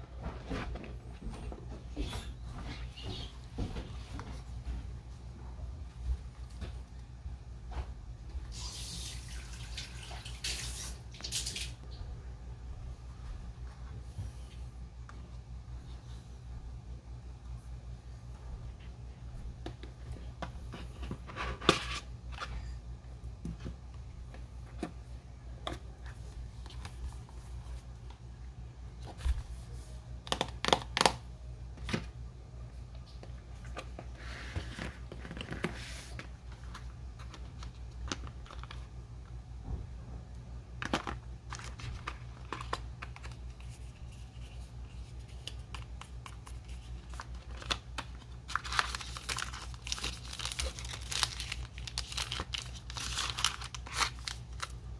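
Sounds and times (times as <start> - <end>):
steady low hum: 0.0 - 8.6, 11.0 - 54.9
paper and plastic rustling: 33.1 - 38.9, 40.8 - 54.9
packaging tearing and crinkling: 45.4 - 54.8.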